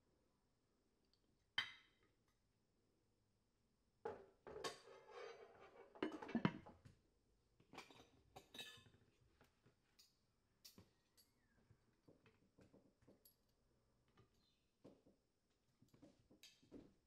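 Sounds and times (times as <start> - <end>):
dishes and cutlery clattering: 4.1 - 6.8, 7.7 - 9.0.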